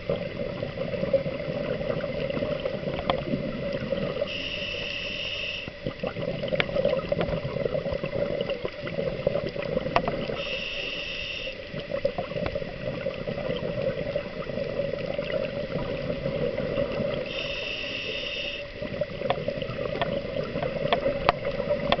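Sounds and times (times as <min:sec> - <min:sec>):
regulator inhalation hiss: 0:04.3 - 0:05.8, 0:10.3 - 0:11.8, 0:17.2 - 0:18.8.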